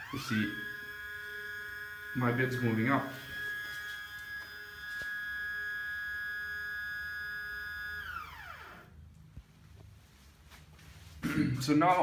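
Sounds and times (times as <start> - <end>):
stepper motor whine: 0.0 - 9.0.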